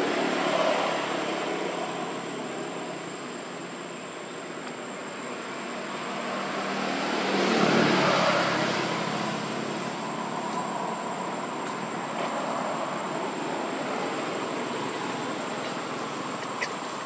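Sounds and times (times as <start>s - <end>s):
vehicle passing: 5.7s - 17.0s.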